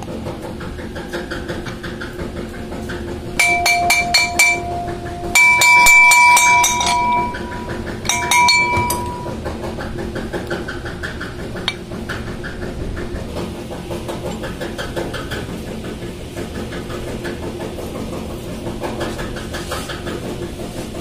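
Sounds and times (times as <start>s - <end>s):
low machine hum: 0.7s - 10.3s
hammer striking metal: 3.4s - 9.4s.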